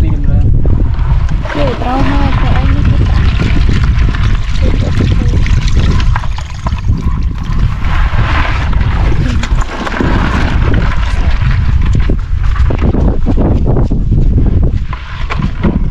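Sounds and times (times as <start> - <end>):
wind rumble on microphone: 0.0 - 15.9
shallow water splashing: 1.2 - 12.8.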